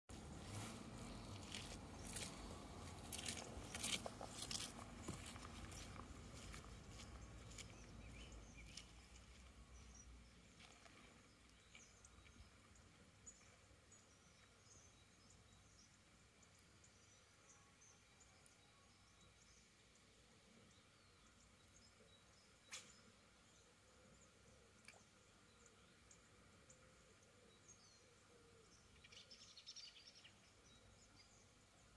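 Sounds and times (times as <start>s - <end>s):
footsteps on dirt path: 0.1s - 12.4s.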